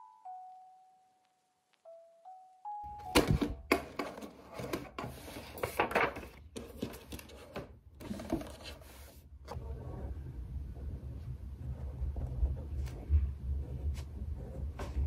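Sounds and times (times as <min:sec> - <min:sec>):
paper rustling and shuffling: 0:03.1 - 0:09.2.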